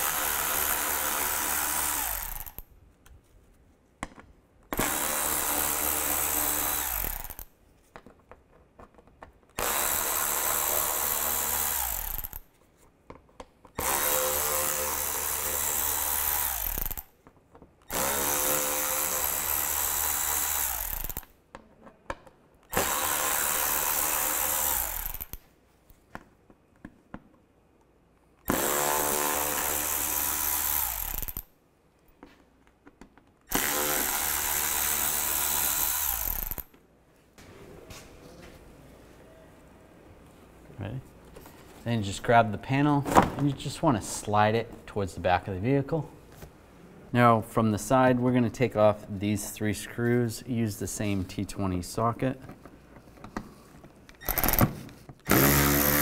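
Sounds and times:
cordless ratchet motor whining: 0:13.8 - 0:17.1, 0:17.9 - 0:21.3, 0:22.7 - 0:25.4, 0:29.6 - 0:31.4.

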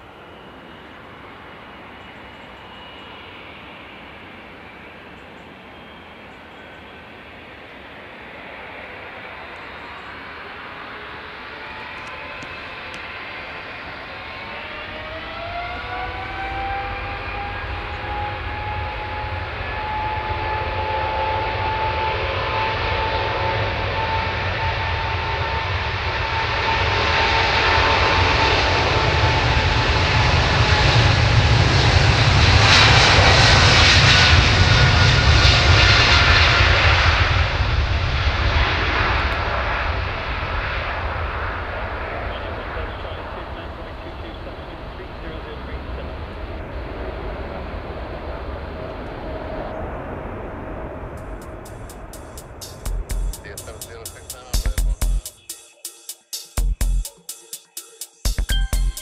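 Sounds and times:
jet engines spooling up: 0:00.0 - 0:59.0
jet takeoff roll roar: 0:00.0 - 0:59.0.

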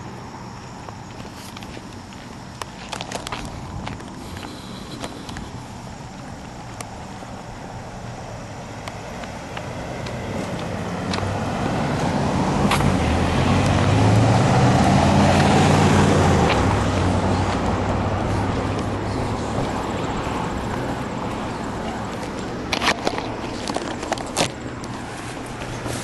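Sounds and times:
vehicle driving past: 0:09.7 - 0:22.7.

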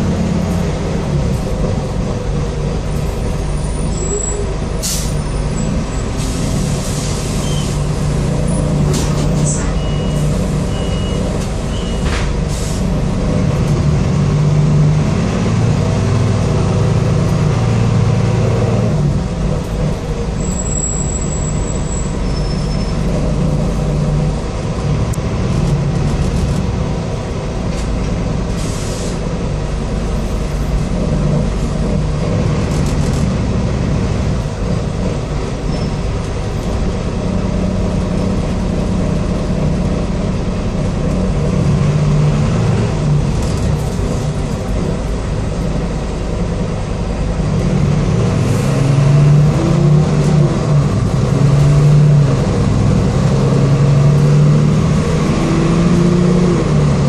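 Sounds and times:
bus diesel engine running: 0:00.0 - 0:57.0
road noise: 0:00.0 - 0:57.0
short air hiss: 0:28.6 - 0:29.3.

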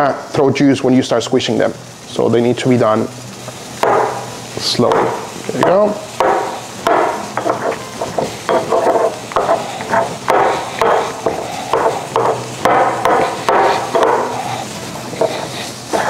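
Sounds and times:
pestle mashing in stone mortar: 0:04.9 - 0:16.0.

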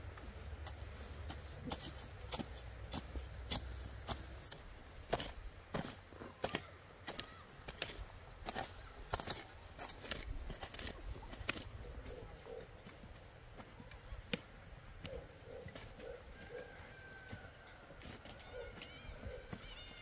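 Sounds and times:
hoes chopping into soil: 0:00.7 - 0:16.3.

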